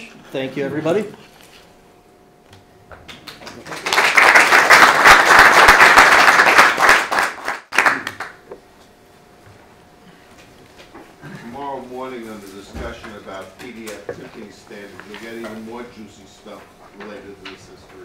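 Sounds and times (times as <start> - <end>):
audience applauding: 3.1 - 8.4.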